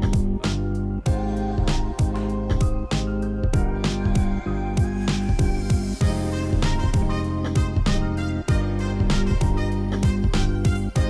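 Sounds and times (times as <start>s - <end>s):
music with steady beat: 0.0s - 11.0s
deep kick drum: 1.1s - 11.0s.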